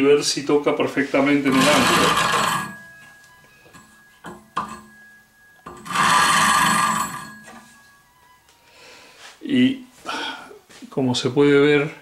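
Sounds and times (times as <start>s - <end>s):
gouge scraping on grinding wheel: 1.4s - 5.0s, 5.6s - 7.9s.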